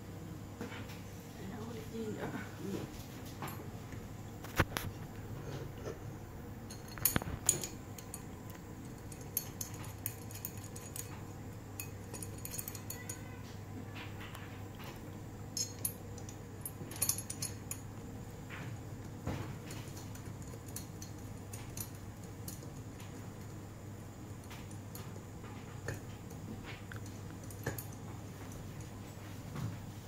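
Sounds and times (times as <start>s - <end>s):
faint low hum: 0.0s - 30.0s
small metal clicks and clinks: 6.7s - 15.0s, 15.6s - 28.9s.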